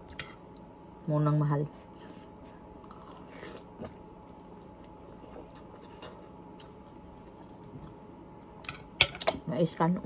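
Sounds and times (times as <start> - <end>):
person chewing and slurping: 1.9 - 8.0.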